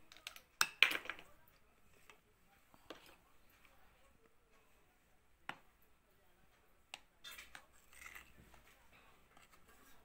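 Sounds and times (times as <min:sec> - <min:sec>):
spoon scraping plastic bowl: 0:07.2 - 0:10.0.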